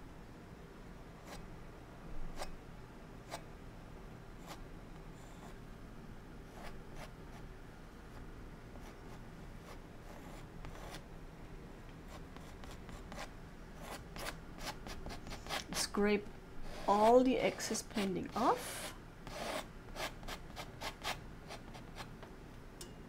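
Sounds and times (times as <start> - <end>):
palette knife scraping canvas: 16.6 - 22.1.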